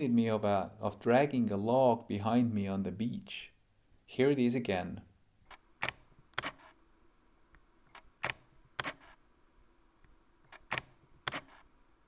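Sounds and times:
camera shutter clicks: 5.5 - 6.8, 7.9 - 9.2, 10.5 - 11.7.

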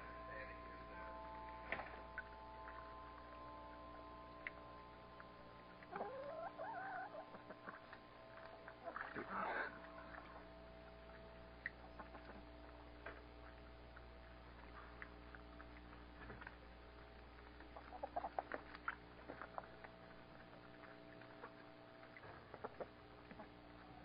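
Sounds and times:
low electrical hum: 0.0 - 24.0
hens clucking and chirping: 5.9 - 7.9, 17.7 - 18.6, 22.5 - 24.0.

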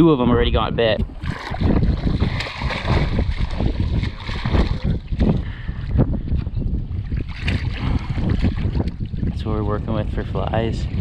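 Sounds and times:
wind buffeting microphone: 0.0 - 11.0
water against boat: 0.8 - 11.0.

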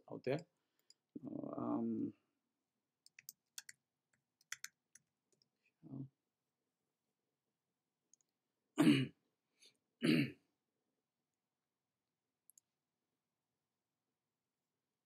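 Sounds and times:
person coughing: 8.8 - 9.2, 10.0 - 10.4.

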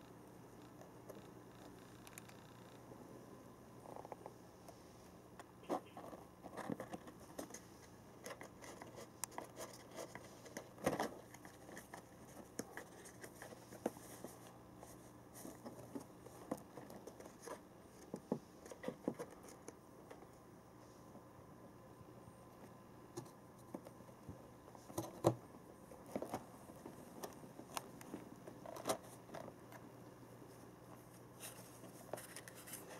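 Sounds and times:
cat scratching cardboard box: 5.6 - 14.4
paper crinkling: 30.9 - 32.9.

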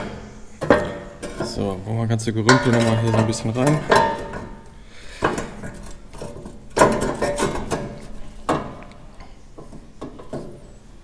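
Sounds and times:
sheet metal clanking and rattling: 0.0 - 11.0
ringing metal clanks: 2.4 - 10.8.

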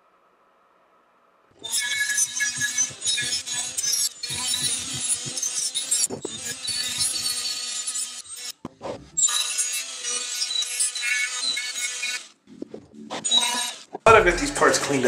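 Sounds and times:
low knock: 14.1 - 14.8.

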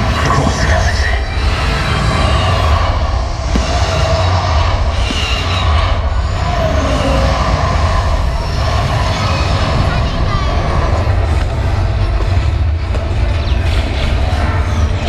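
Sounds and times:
fireworks rumbling: 2.6 - 14.3.

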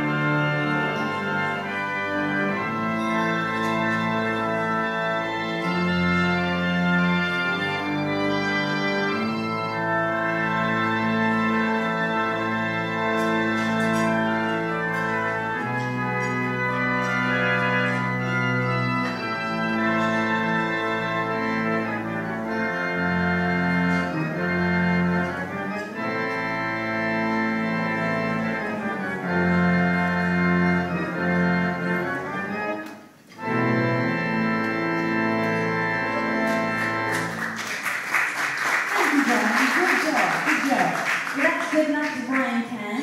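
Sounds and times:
pipe organ chords: 0.0 - 38.9
applause: 36.8 - 43.0.

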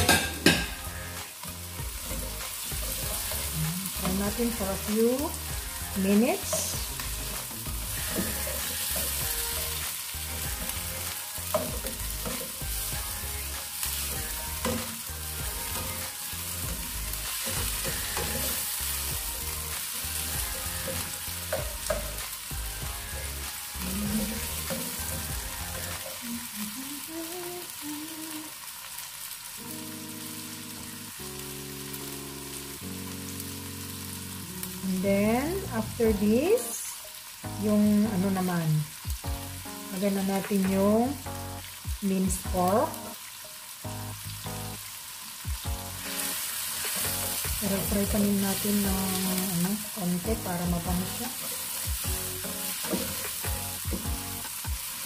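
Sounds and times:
soft background music: 0.0 - 28.6, 29.5 - 55.0
vegetables sizzling in hot oil: 0.0 - 55.0.

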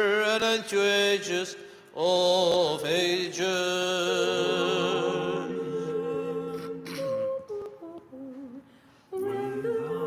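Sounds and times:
unaccompanied choir singing chord: 3.6 - 7.4, 9.1 - 10.0.

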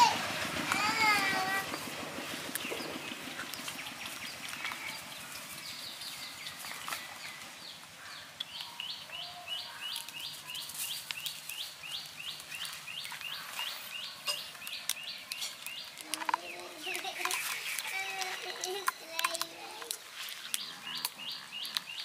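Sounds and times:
cats eating off paper plate: 14.5 - 22.0.

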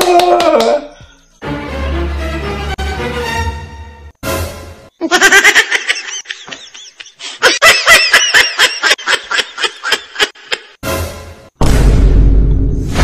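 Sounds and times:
woman laughing hard: 5.0 - 10.8.

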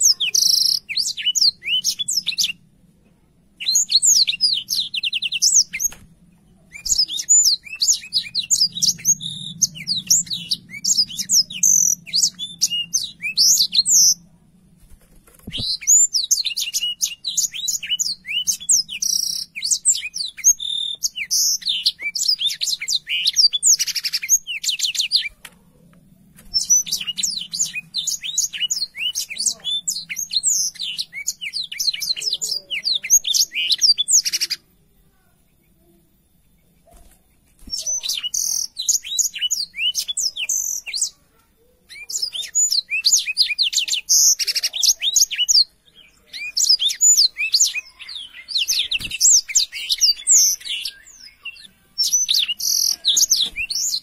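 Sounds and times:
canary singing: 0.0 - 2.8, 3.6 - 14.4, 15.2 - 34.8, 35.4 - 54.0.

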